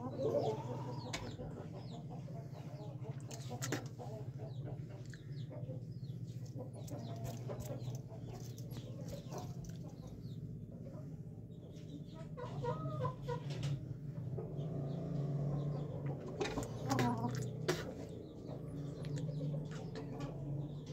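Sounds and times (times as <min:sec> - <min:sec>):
steady low hum: 0:00.0 - 0:13.2.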